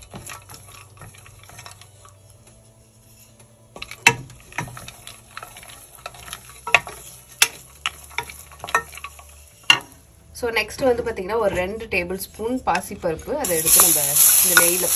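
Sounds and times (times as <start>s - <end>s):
wooden spatula scraping steel pot: 0.0s - 10.0s, 13.3s - 14.9s
nuts sizzling in oil: 0.0s - 10.3s, 13.4s - 14.9s.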